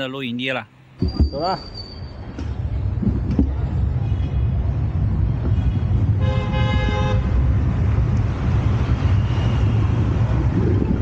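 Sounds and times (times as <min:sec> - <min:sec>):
wind and road noise rumble: 0:00.9 - 0:11.0
vehicle horn honking: 0:05.6 - 0:07.3.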